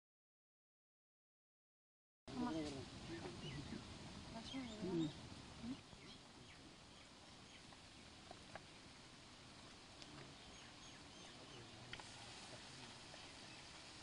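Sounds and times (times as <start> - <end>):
faint bird chirps: 3.0 - 9.0, 10.0 - 12.3.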